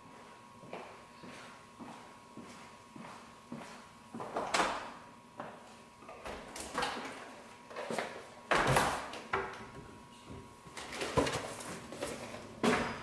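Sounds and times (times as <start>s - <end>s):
footsteps on tile floor: 0.0s - 4.5s.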